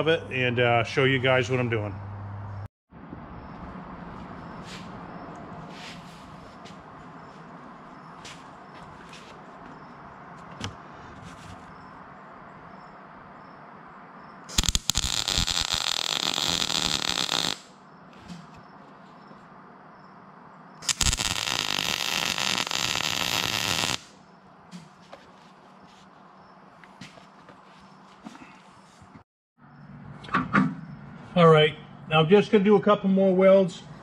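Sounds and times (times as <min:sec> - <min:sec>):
welding arc crackling: 0:14.5 - 0:17.7, 0:20.8 - 0:24.1.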